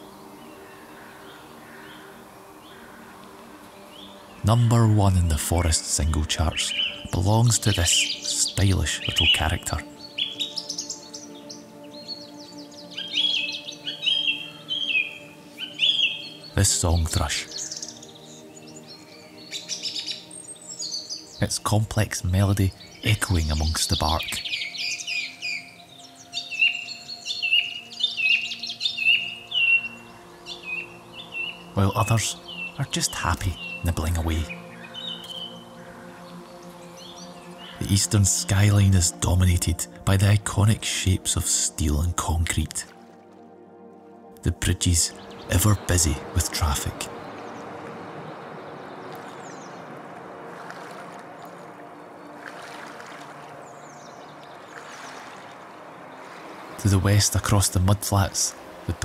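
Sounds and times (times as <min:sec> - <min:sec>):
song thrush singing: 0:00.0 - 0:59.0
distant traffic drone: 0:44.2 - 0:59.0
water wash: 0:47.0 - 0:59.0.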